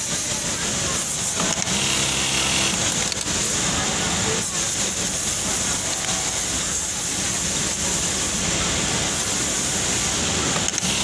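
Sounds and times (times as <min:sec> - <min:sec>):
many sewing machines din: 0:00.0 - 0:11.0
sewing machine stitching burst: 0:10.6 - 0:11.0.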